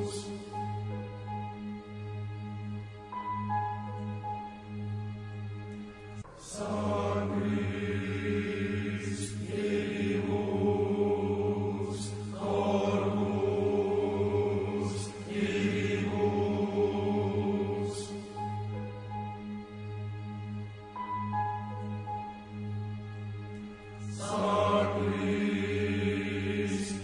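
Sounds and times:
voices chanting: 6.4s - 18.4s, 24.2s - 27.0s.

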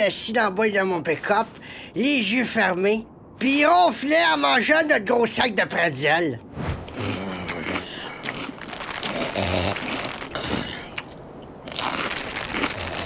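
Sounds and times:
bear crunching and chewing: 6.8s - 13.0s.

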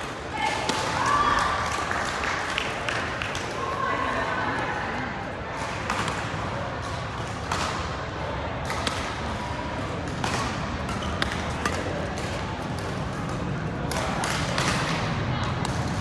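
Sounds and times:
crowd murmur in sports hall: 0.0s - 16.0s
rackets hitting shuttlecock: 5.6s - 8.0s, 8.6s - 16.0s.

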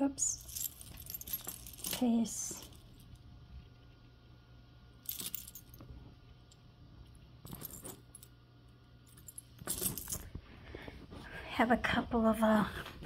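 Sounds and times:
metal jewelry jingling: 0.2s - 3.1s, 5.0s - 5.8s, 7.4s - 8.3s, 9.0s - 10.3s.

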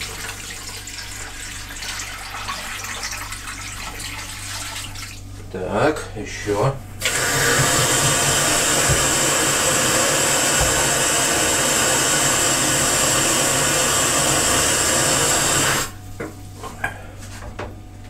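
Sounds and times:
tap water filling plastic jug: 7.0s - 16.0s.

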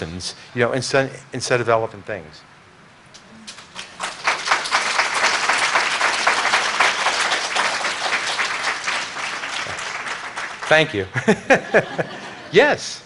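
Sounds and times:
audience applauding: 3.5s - 12.1s.

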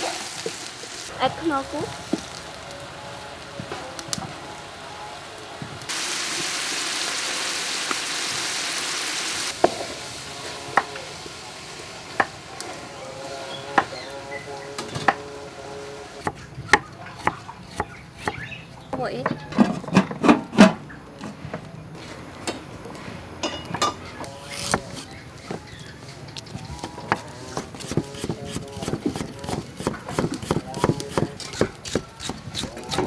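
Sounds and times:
food sizzling in hot oil: 0.0s - 2.7s, 5.8s - 14.1s.

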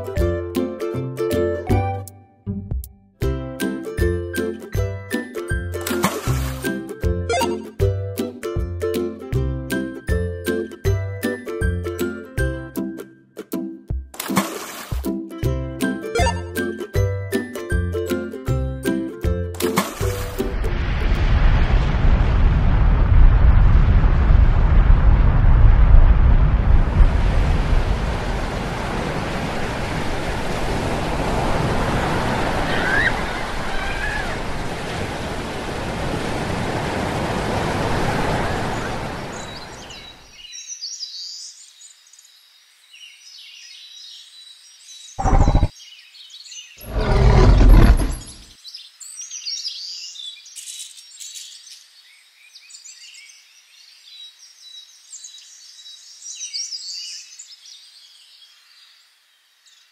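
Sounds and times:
surf-like rushing noise: 26.4s - 39.8s
faint bird chirping: 39.4s - 59.9s.

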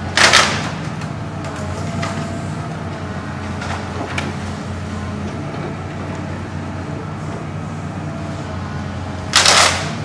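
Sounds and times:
excavator diesel engine running: 0.0s - 10.0s.

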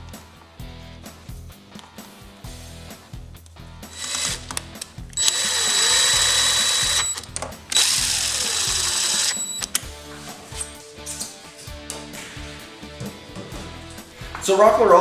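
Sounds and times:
power screwdriver whining: 3.9s - 9.8s.

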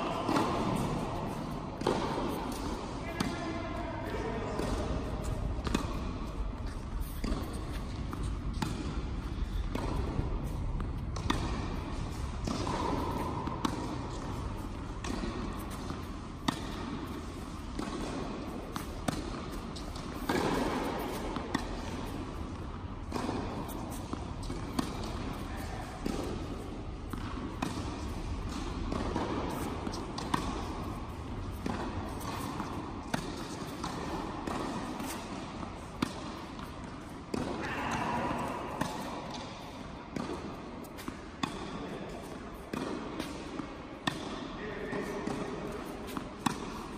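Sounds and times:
racket striking tennis ball: 0.0s - 46.9s
tennis ball bouncing: 0.1s - 46.9s.

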